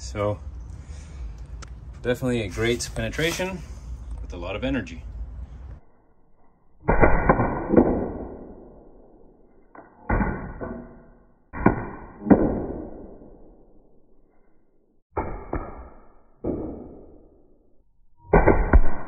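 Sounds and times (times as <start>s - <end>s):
air gun shots and impacts: 6.8s - 8.5s, 18.3s - 19.0s.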